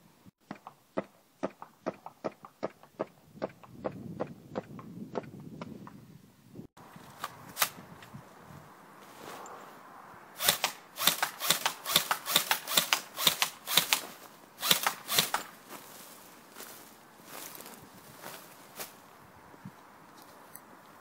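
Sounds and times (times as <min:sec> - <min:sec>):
airsoft rifle firing sharp shots: 0:10.4 - 0:15.6.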